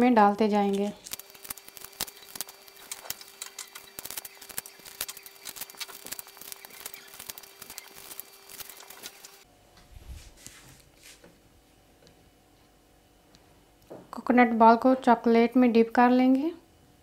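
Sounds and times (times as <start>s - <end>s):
paper liners rustling: 0.2s - 9.4s.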